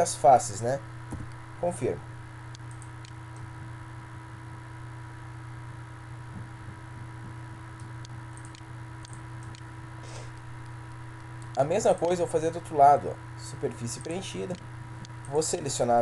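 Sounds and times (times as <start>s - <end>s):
low electrical hum: 0.0s - 16.0s
computer mouse clicks: 2.5s - 3.4s, 7.8s - 9.7s, 14.0s - 15.4s.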